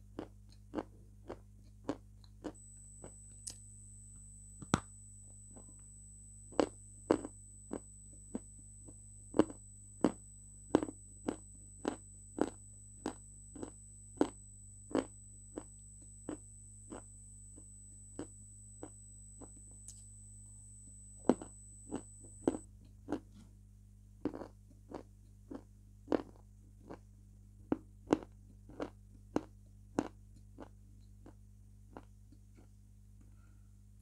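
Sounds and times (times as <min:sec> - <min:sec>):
chewing clicks: 0:24.2 - 0:27.0.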